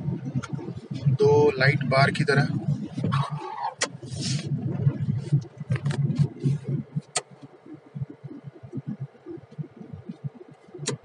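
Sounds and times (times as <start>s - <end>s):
car engine and road noise: 0.0s - 11.0s
sharp clicks: 7.1s - 8.2s.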